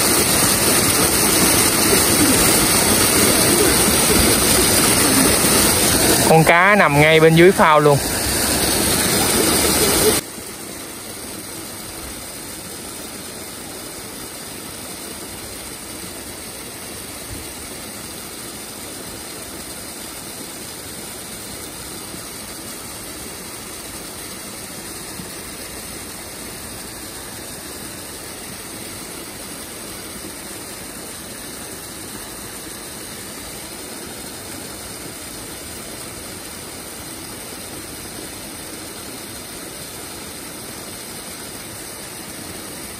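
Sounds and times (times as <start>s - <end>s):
loud rush: 0.0s - 10.2s
waterfall rushing: 0.0s - 42.9s.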